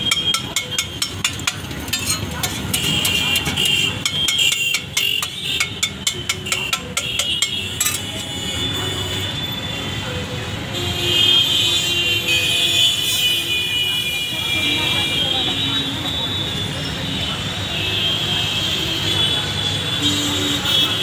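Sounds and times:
voices: 0.0 - 10.8, 13.6 - 21.0
street traffic: 0.0 - 21.0
metal spatula scraping a griddle: 0.1 - 8.1.

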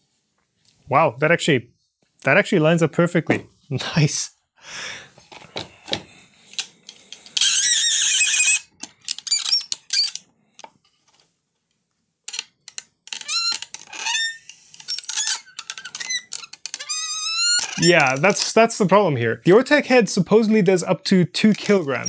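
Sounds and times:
camera head joints squeaking: 13.1 - 18.3.

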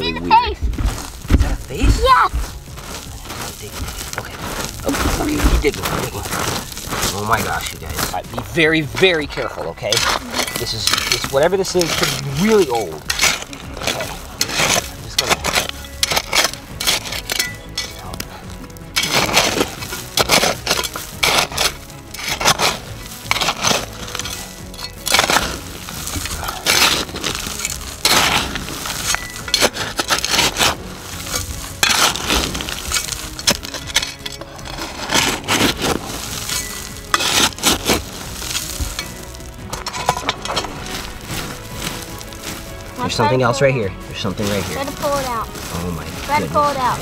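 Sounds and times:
background music: 0.0 - 47.0
digging in loose cinder and rock: 0.0 - 47.0
stones clinking: 0.0 - 47.0.

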